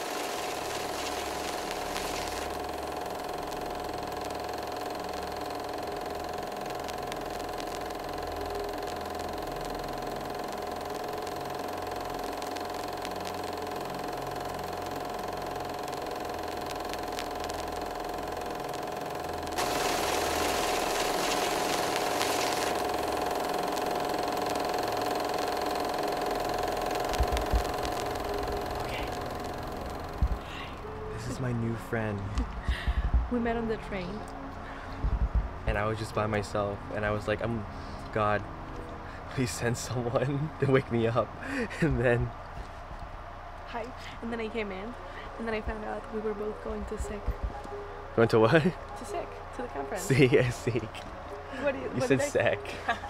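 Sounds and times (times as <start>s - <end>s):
machine clatter: 0.0s - 30.9s
humming tone: 0.0s - 39.3s.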